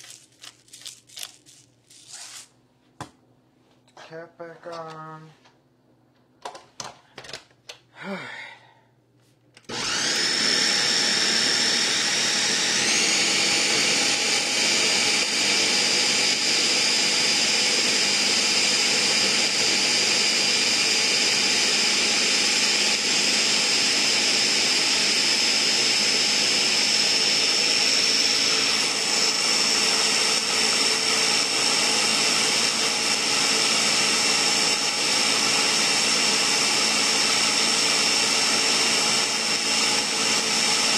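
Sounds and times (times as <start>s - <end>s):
blender motor whining: 9.7s - 40.9s.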